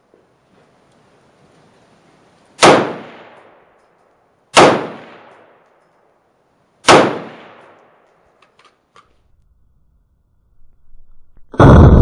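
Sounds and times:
rifle shots echoing indoors: 0:02.6 - 0:03.8, 0:04.5 - 0:05.7, 0:06.8 - 0:08.1.

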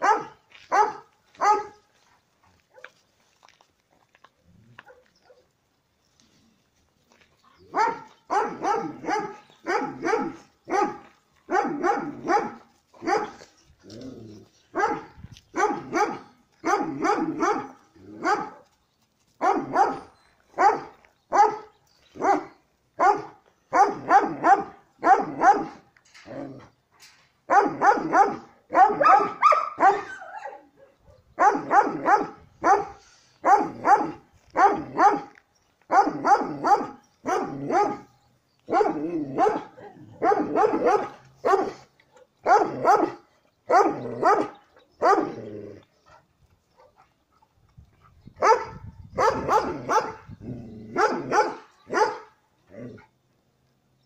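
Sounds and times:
dog barking: 0:00.0 - 0:01.8, 0:02.7 - 0:03.0, 0:04.8 - 0:05.5, 0:07.7 - 0:13.4, 0:14.8 - 0:18.7, 0:19.4 - 0:25.8, 0:27.5 - 0:35.3, 0:35.9 - 0:38.1, 0:38.7 - 0:45.4, 0:48.4 - 0:50.3, 0:50.9 - 0:52.4.

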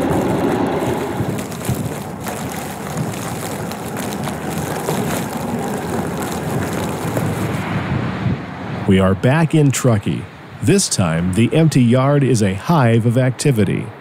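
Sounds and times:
train rushing noise: 0:00.0 - 0:02.2
low train rumble: 0:00.0 - 0:14.0.

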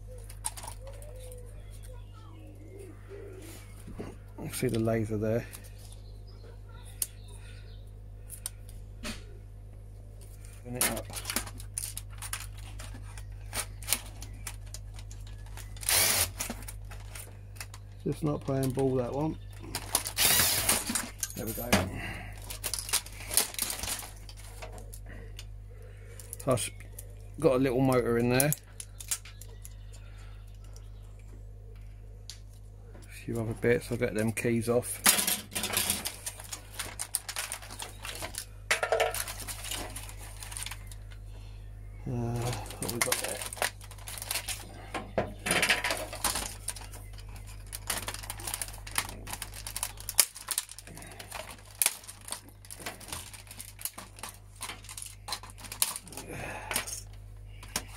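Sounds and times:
cordless drill burst: 0:15.8 - 0:16.4, 0:20.2 - 0:20.8.

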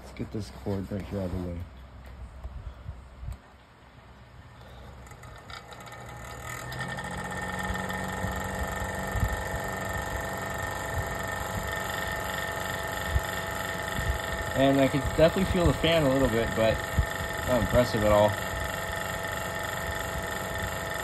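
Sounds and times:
fan heater motor humming: 0:00.0 - 0:21.0
fan blade rattling: 0:04.7 - 0:21.0.

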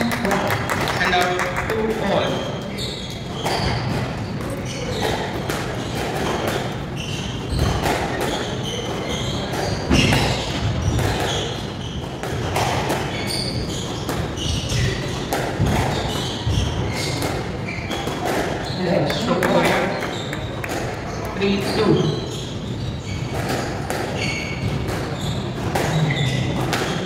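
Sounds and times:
shoes squeaking on wooden floor: 0:01.9 - 0:27.0
squash ball struck by rackets: 0:05.0 - 0:08.5, 0:09.4 - 0:18.6, 0:23.3 - 0:26.0, 0:26.6 - 0:27.0.

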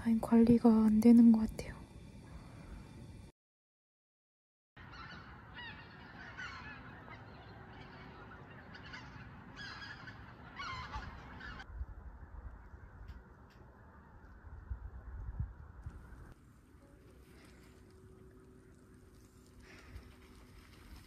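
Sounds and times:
geese honking: 0:04.8 - 0:11.6.

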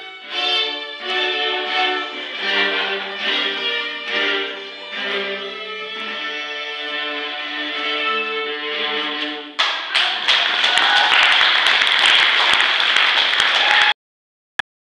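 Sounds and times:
audience applause: 0:09.6 - 0:14.0.

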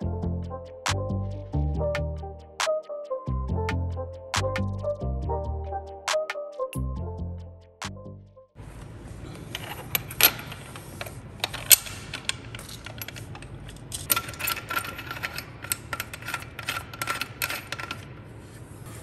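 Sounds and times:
metal tools clinking: 0:11.4 - 0:18.1.

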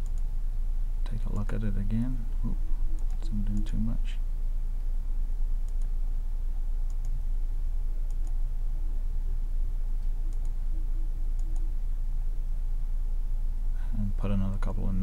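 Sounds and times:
low electrical hum: 0:00.0 - 0:15.0
computer mouse button clicking: 0:08.1 - 0:08.4.

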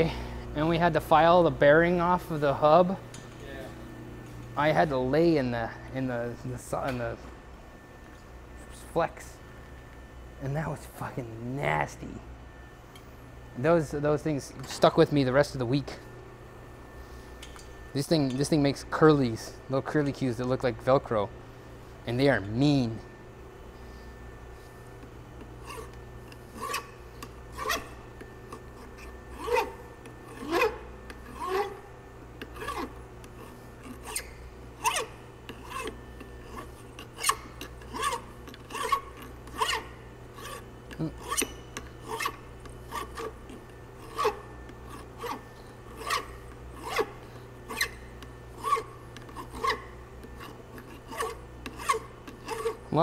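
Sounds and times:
steady low hum: 0:00.0 - 0:53.0
hand file scraping metal: 0:25.6 - 0:31.8, 0:32.4 - 0:53.0.

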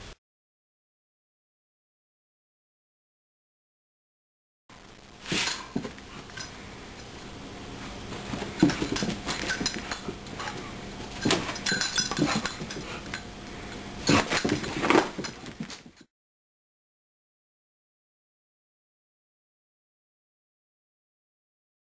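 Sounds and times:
dog tags clinking: 0:08.6 - 0:13.3.

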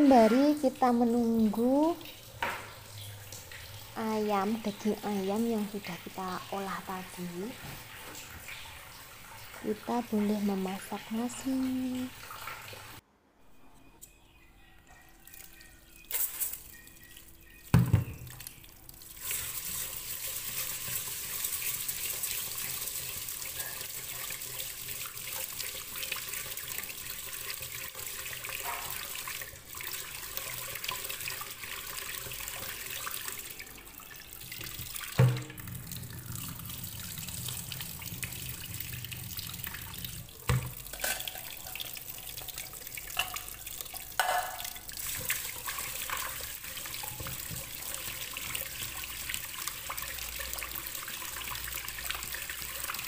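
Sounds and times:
tap water running into pot: 0:00.0 - 0:13.0, 0:16.2 - 0:53.0
rice washed by hand: 0:19.0 - 0:53.0.

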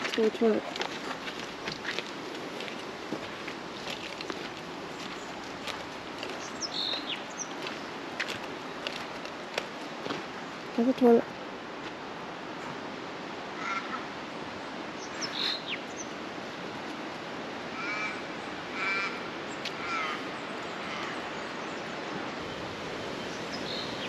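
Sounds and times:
outdoor background noise: 0:00.0 - 0:24.0
bird calling: 0:06.2 - 0:07.9, 0:15.0 - 0:16.2, 0:17.7 - 0:22.0.

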